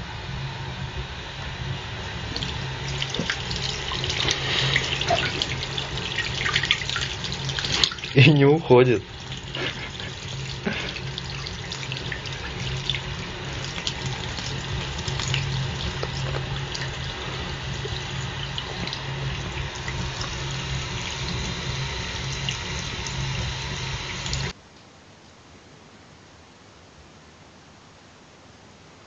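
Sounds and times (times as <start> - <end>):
tap water running into sink: 2.2 - 24.5.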